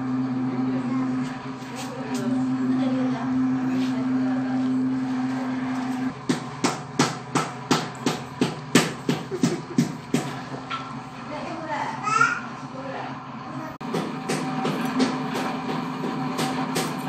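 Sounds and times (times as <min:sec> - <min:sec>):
steady low hum: 0:00.0 - 0:11.9.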